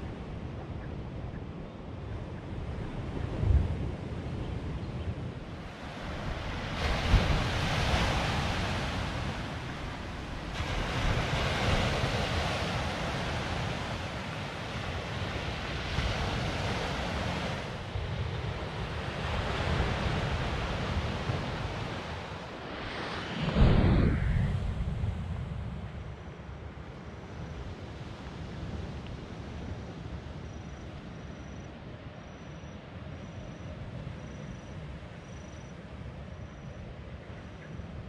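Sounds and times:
wind rumbling on microphone: 0.0 - 38.0
sea waves washing on shore: 5.4 - 26.1.

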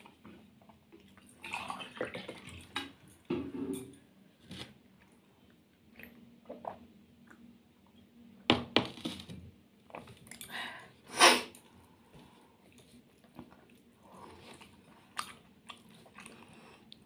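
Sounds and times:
wet squishing food: 12.1 - 17.0
chewing: 12.7 - 17.0.

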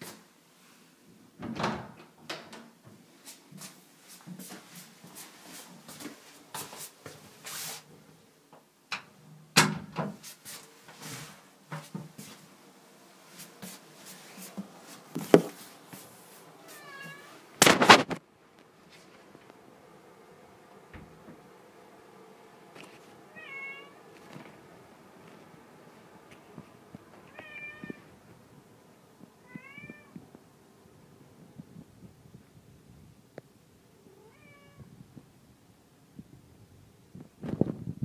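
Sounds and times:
doors opening and shutting: 1.4 - 2.8, 8.9 - 10.3, 20.8 - 21.4
cat meowing: 16.6 - 17.4, 23.3 - 24.0, 27.3 - 28.1, 29.4 - 30.2, 34.1 - 34.9.

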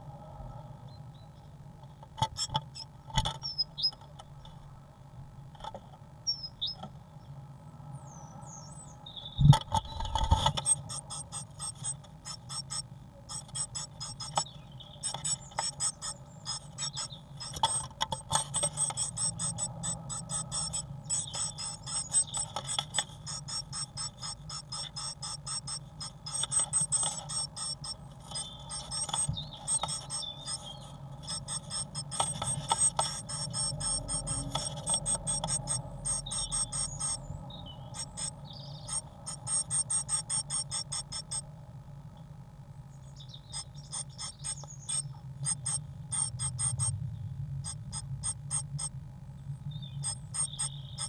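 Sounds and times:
bird scratching and tapping on wood: 2.2 - 4.1, 9.5 - 37.1.

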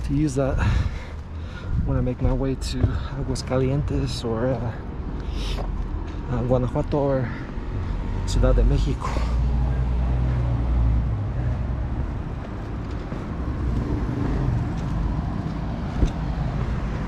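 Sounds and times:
cars running past: 4.6 - 17.0.

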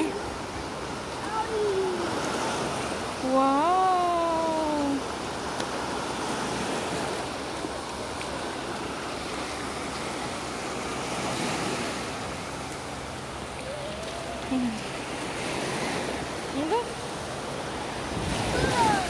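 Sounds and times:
waves washing onto a beach: 0.0 - 19.0
wind on microphone: 17.8 - 19.0.

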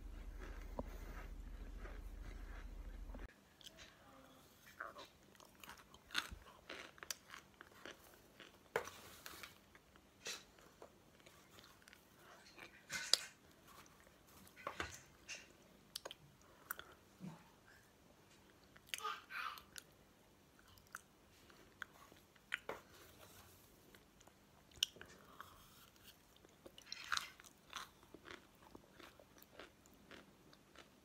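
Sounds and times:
crunchy chewing: 0.0 - 3.9, 4.8 - 14.0, 20.6 - 31.0.

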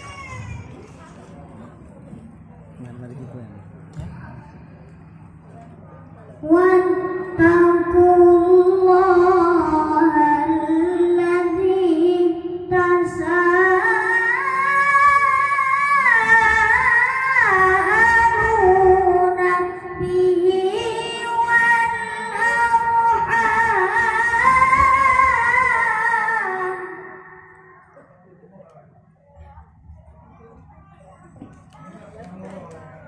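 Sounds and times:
boy reciting melodically over a pa: 3.9 - 27.9.

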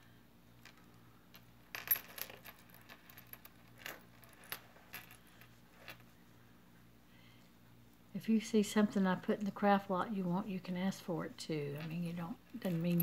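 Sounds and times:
metal chain and charms clinking: 1.7 - 6.0, 11.7 - 13.0.

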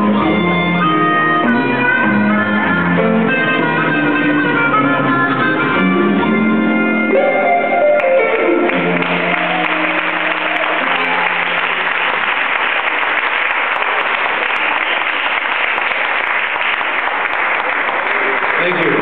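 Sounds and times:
band playing held notes: 0.0 - 15.8
audience applauding: 7.8 - 19.0.

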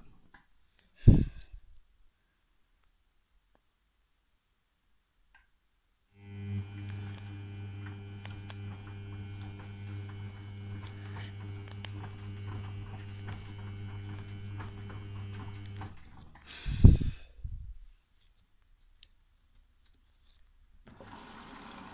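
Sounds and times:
washing machine motor hum: 6.2 - 16.8, 20.8 - 21.9
wet laundry tumbling clicks: 7.8 - 16.5.

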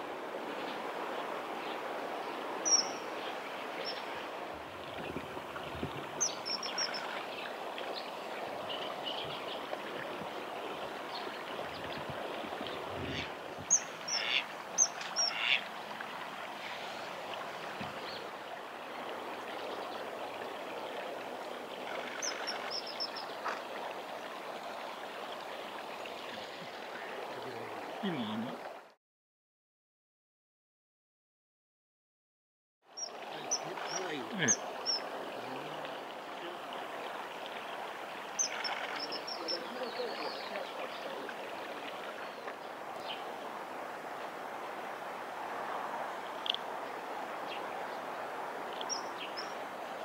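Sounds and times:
stream rushing: 0.0 - 29.0, 32.9 - 50.0
bird high whistled calls: 2.6 - 3.0.

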